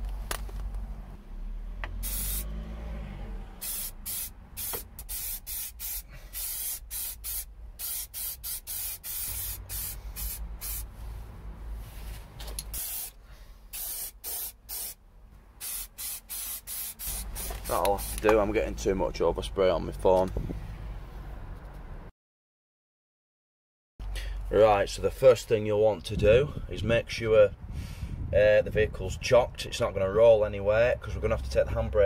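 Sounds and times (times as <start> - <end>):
spray paint can hissing: 2.0 - 2.5, 3.6 - 10.9, 12.6 - 15.0, 15.6 - 18.3.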